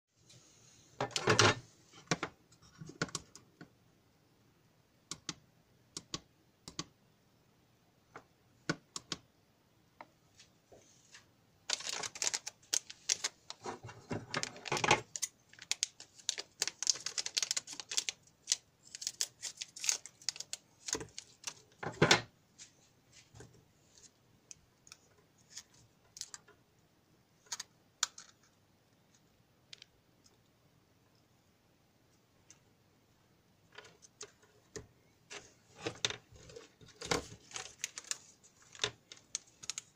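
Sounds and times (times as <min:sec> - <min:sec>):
circuit boards clicking and tapping: 0:05.1 - 0:06.9, 0:08.2 - 0:09.3
rustling on paper: 0:10.7 - 0:21.8, 0:35.3 - 0:39.9.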